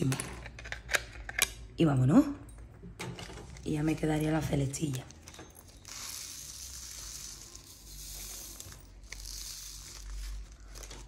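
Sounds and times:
plastic beads rattling on tray: 5.0 - 11.0.

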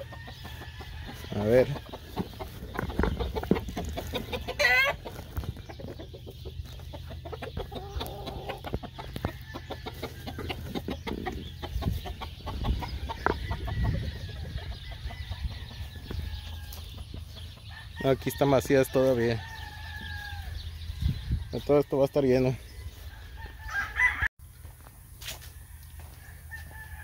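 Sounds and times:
roosters clucking and calling: 0.0 - 27.0.

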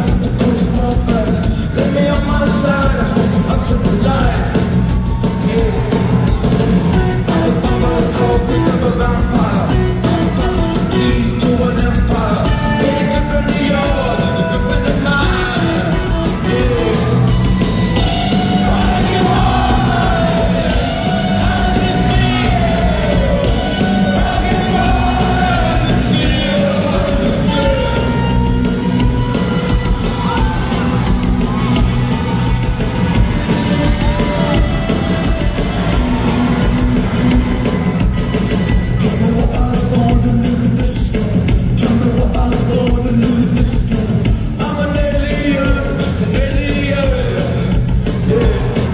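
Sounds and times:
live rock band: 0.0 - 48.9
lead vocal singing: 5.3 - 29.5, 39.0 - 48.9.

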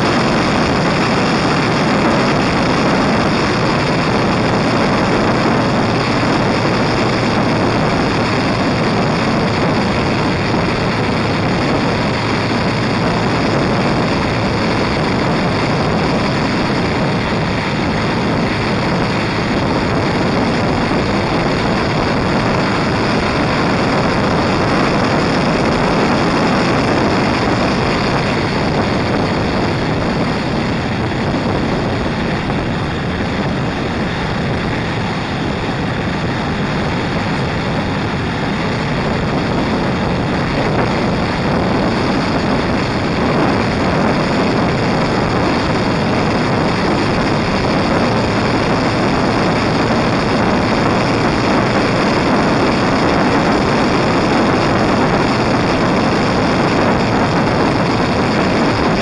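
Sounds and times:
motorcycle engine and tyres: 0.0 - 59.0
wind on microphone: 0.0 - 59.0.

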